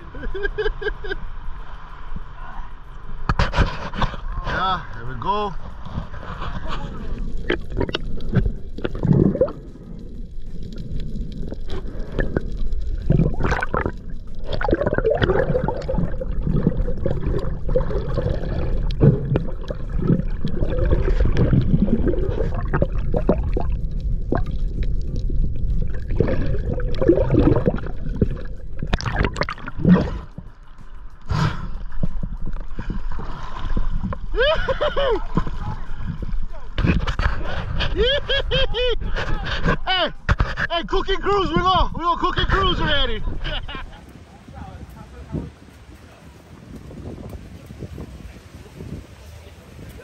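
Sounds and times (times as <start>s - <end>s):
muffled underwater rumble: 0.0s - 50.0s
gurgling bubbles: 6.6s - 40.6s.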